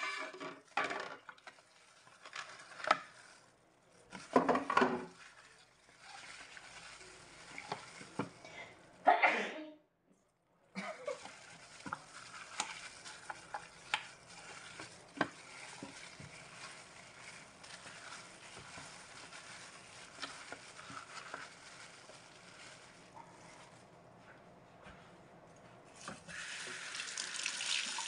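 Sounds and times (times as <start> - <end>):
plastic glove crinkling: 0.7 - 9.0, 10.8 - 24.5
wet squelching of raw chicken: 1.4 - 4.3, 5.1 - 9.0, 10.8 - 23.9.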